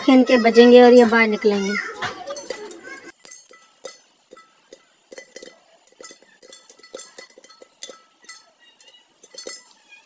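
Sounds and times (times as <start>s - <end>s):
popcorn popping against metal lid: 2.1s - 10.0s.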